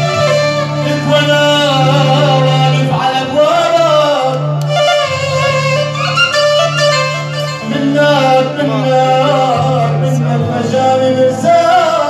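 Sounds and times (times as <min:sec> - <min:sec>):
man singing through microphone: 0:00.0 - 0:04.8, 0:07.6 - 0:12.0
instrumental accompaniment: 0:00.0 - 0:12.0.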